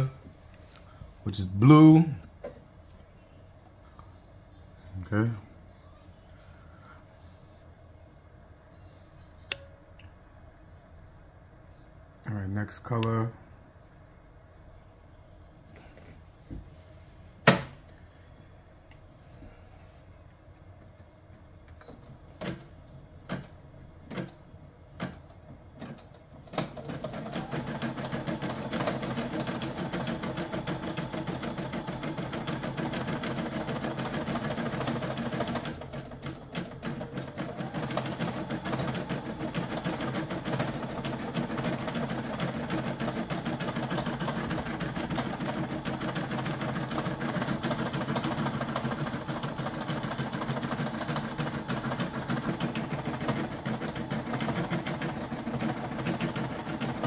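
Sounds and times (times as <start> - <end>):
embroidery machine needle clatter: 25.8 - 57.0.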